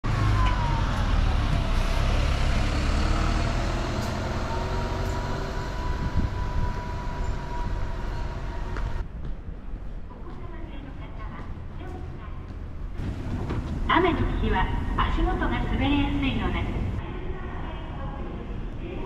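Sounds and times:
bus engine rumble: 0.0s - 9.6s, 11.9s - 17.0s
falling whine: 0.1s - 9.0s.

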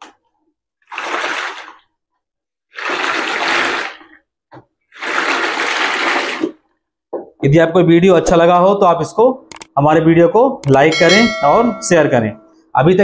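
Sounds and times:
water sloshing in mop bucket: 0.8s - 2.0s, 2.7s - 6.8s.

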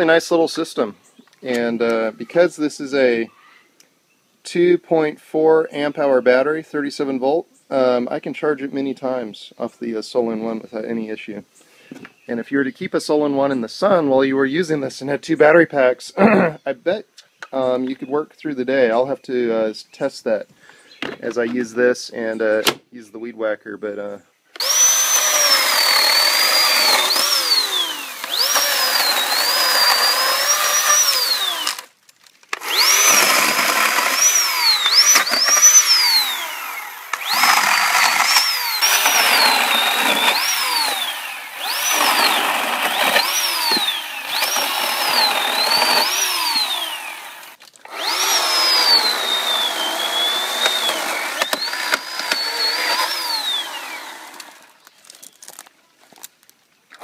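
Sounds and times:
electric chainsaw cutting branches: 24.6s - 54.8s.

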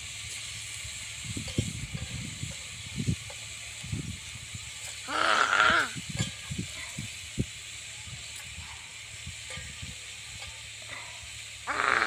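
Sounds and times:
food sizzling in a pan: 0.0s - 12.0s
loud animal call: 5.0s - 6.0s, 11.6s - 12.0s.

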